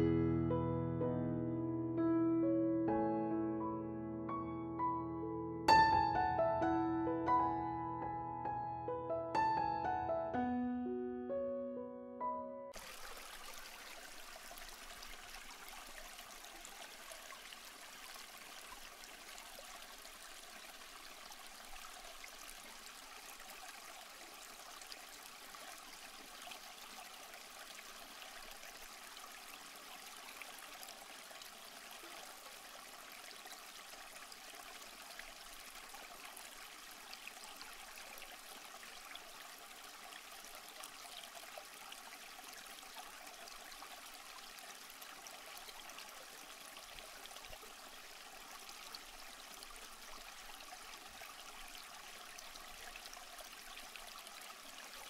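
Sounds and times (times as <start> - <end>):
fountain water trickling: 12.7 - 55.0.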